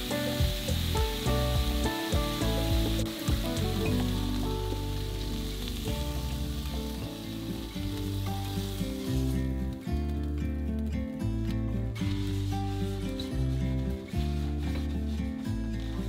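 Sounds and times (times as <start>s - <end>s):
meat sizzling in frying pan: 0.0s - 10.4s, 11.9s - 16.0s
background music: 0.0s - 16.0s.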